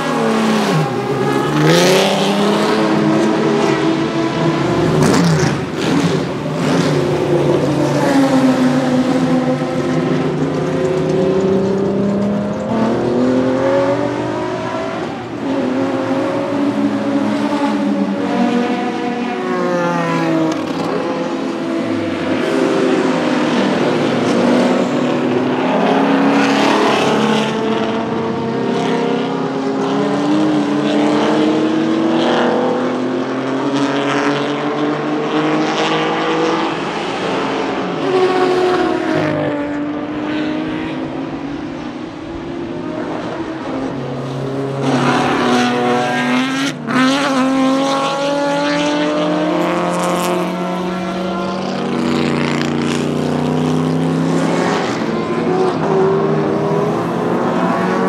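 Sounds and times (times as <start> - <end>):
racing cars passing at speed: 0.0 - 58.0.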